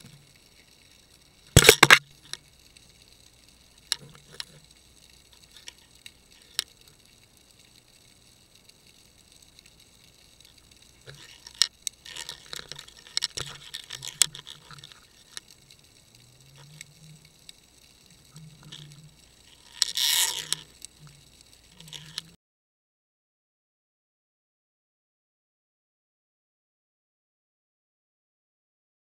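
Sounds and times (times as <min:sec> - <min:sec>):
crab clicking and scraping on housing: 0:01.5 - 0:02.6, 0:03.8 - 0:07.5, 0:10.4 - 0:22.4.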